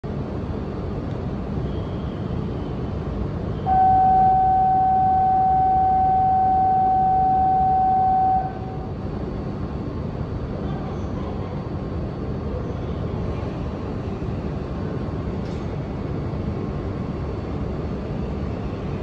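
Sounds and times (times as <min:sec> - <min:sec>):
train low hum: 0:00.0 - 0:19.0
steady electronic tone: 0:03.6 - 0:09.0.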